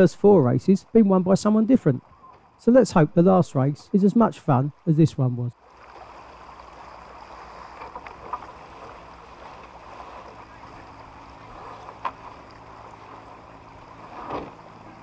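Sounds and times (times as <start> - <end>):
low even hum: 0.0 - 15.0
water wash: 0.0 - 15.0.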